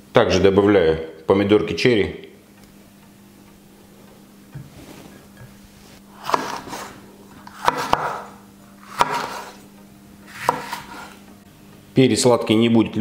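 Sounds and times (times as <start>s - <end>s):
knife slicing on wooden board: 6.2s - 9.6s, 10.3s - 11.2s.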